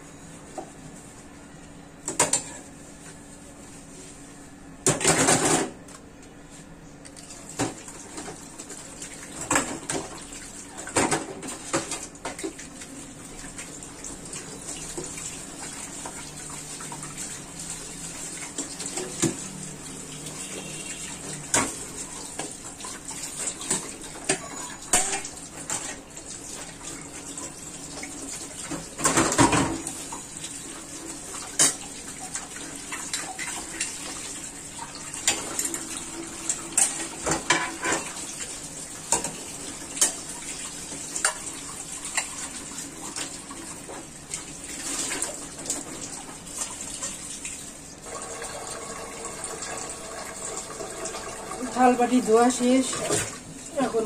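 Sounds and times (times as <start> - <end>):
tap water running: 7.2 - 54.0
steel bowls clattering in sink: 23.2 - 26.0, 36.7 - 38.2.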